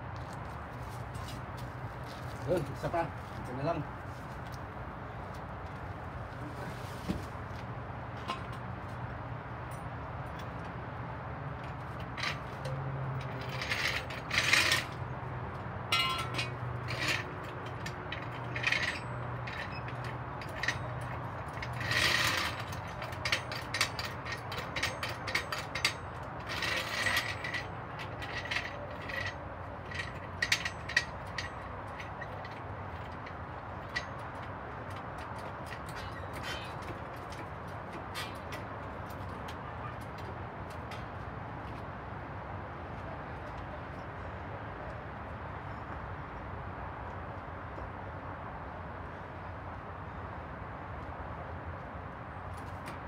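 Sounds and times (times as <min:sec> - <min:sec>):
metallic scrapes: 0:12.2 - 0:15.0, 0:15.9 - 0:32.6, 0:35.7 - 0:37.0.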